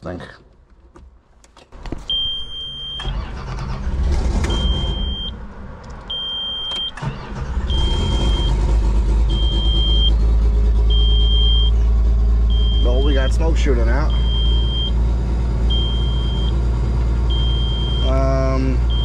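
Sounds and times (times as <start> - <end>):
diesel engine cranking and starting: 2.0 - 19.0
warning buzzer beeps: 17.3 - 18.3.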